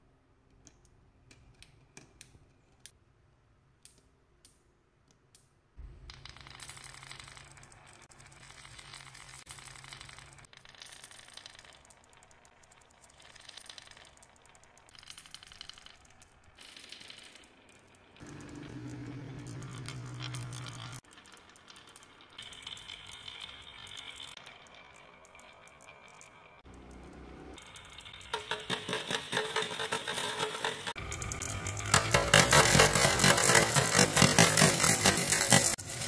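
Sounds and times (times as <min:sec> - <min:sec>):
marbles rolling down wooden run: 0:06.0 - 0:36.0.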